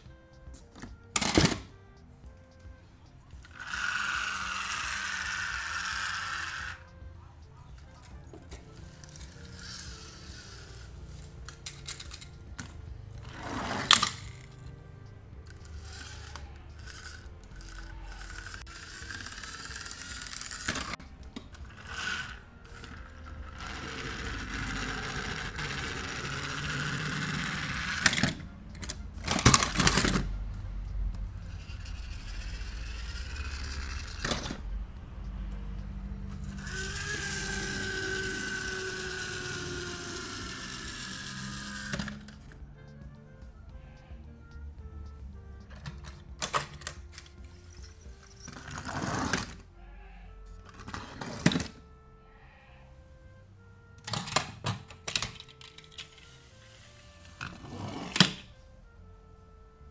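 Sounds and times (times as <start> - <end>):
toy trucks clicking and knocking: 3.3 - 7.1, 7.8 - 14.8, 15.4 - 34.7, 35.4 - 42.7, 44.4 - 49.6, 50.6 - 51.8, 53.9 - 56.6
toy truck rolling on plastic mat: 3.4 - 7.0, 7.8 - 14.6, 15.4 - 30.3, 31.5 - 34.6, 36.4 - 42.6, 46.8 - 49.6, 50.6 - 51.8, 55.0 - 58.5
whirring tone falling in pitch: 36.4 - 42.1.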